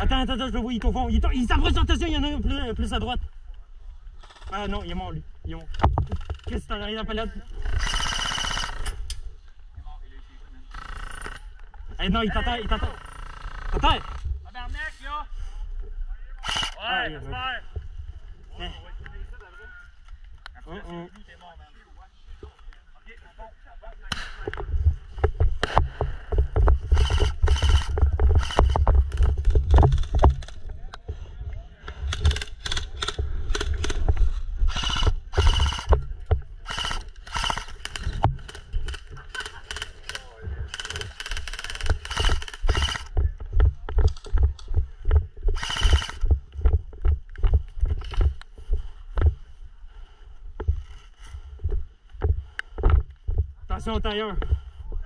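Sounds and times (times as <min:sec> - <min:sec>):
footsteps dull thuds: 0:24.3 - 0:31.2, 0:41.9 - 0:55.0
sharp clicks and knocks: 0:24.4 - 0:31.0, 0:32.0 - 0:48.5.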